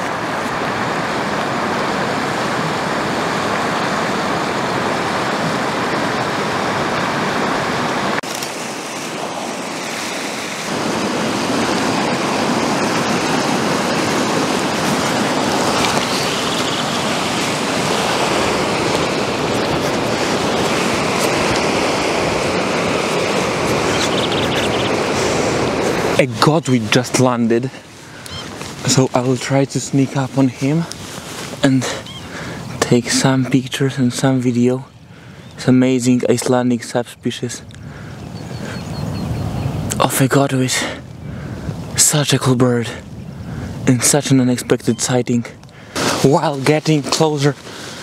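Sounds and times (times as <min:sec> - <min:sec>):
river water rushing over rapids: 0:00.0 - 0:33.4.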